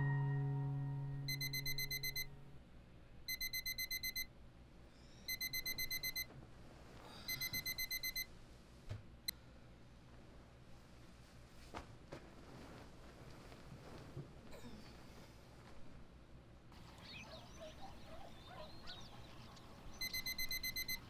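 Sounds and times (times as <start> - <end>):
alarm clock rapid beeps: 1.2 - 2.4, 3.3 - 4.3, 5.3 - 6.3, 7.3 - 8.3, 20.0 - 21.0.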